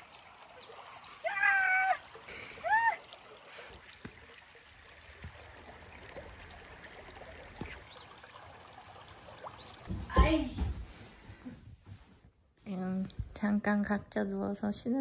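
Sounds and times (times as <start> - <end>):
running water: 0.0 - 11.5.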